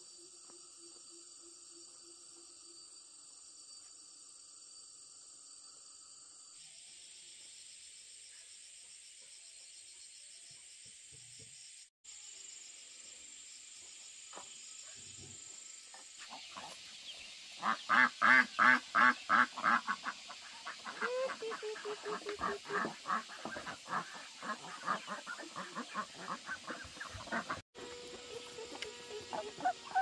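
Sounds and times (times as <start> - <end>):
poultry calling harshly: 17.6 - 27.6, 28.4 - 30.0.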